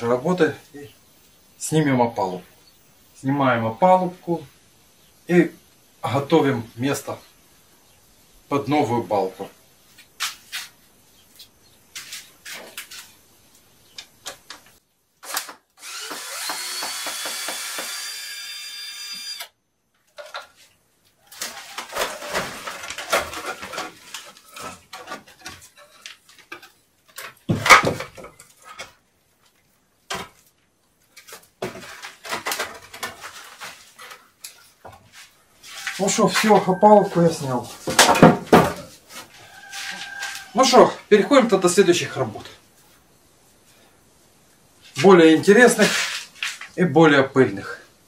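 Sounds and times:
power drill spinning up: 15.8s - 19.5s
boards knocking and clattering: 21.4s - 29.0s, 30.1s - 30.4s, 31.2s - 34.2s, 37.8s - 39.3s.

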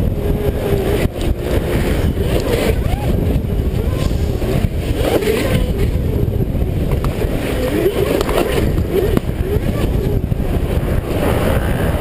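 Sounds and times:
wind and riding noise: 0.0s - 12.0s.

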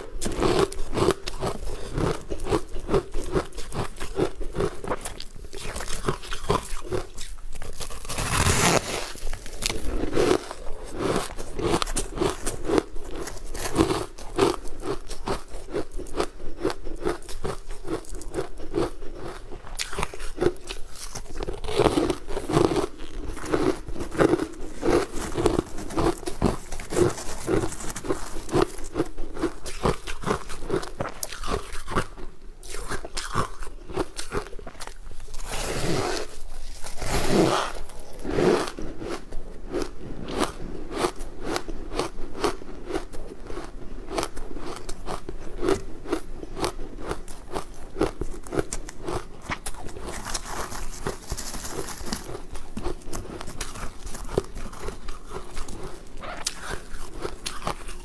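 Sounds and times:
ice being bitten and chewed: 0.0s - 58.0s.

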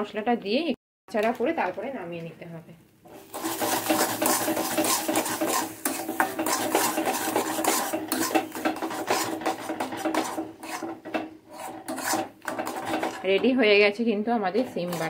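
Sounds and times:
metal spatula scraping paste in pan: 3.1s - 13.7s, 14.5s - 15.0s.

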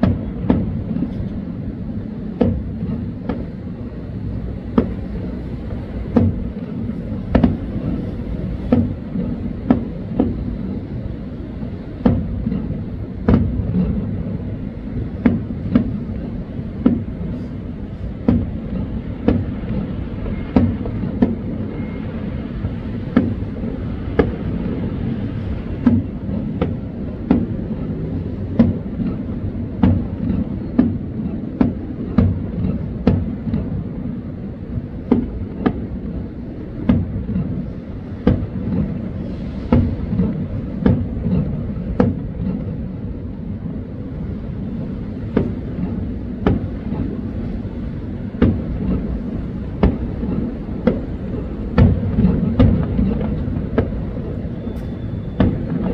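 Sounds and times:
continuous low rumble: 0.0s - 55.9s
fireworks bangs: 48.4s - 55.9s.

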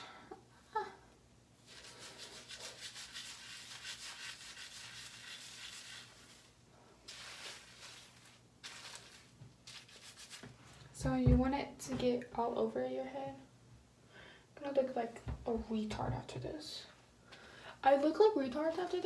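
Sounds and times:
fingers scrubbing wet hair: 1.6s - 6.5s, 7.1s - 10.4s.

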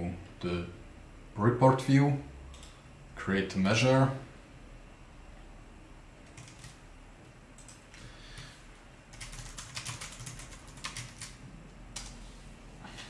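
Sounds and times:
typing on computer keyboard: 6.2s - 6.8s, 7.6s - 8.5s, 9.1s - 12.2s.

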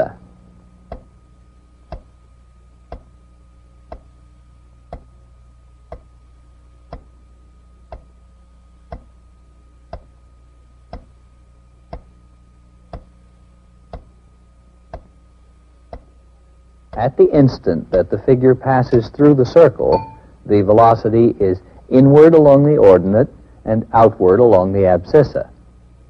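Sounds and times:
low steady hum: 0.0s - 26.0s
clock ticking: 6.9s - 7.1s, 7.9s - 8.1s, 8.9s - 9.1s.

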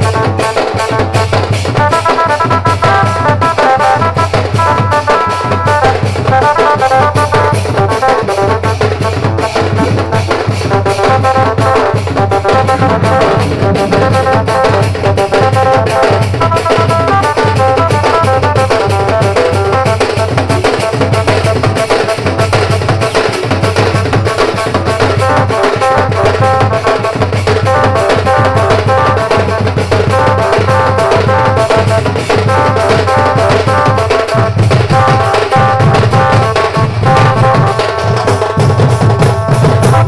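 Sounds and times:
barrel drums beating: 0.0s - 40.0s
street band playing fast music: 0.0s - 40.0s.

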